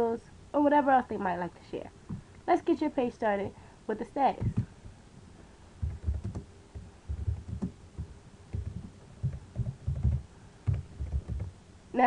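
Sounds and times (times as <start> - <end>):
keyboard typing: 4.4 - 4.7, 5.8 - 11.5.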